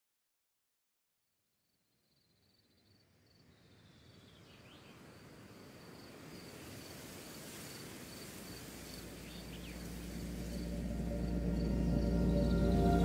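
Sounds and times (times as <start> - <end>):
insect chirping in high pulses: 7.7 - 13.0.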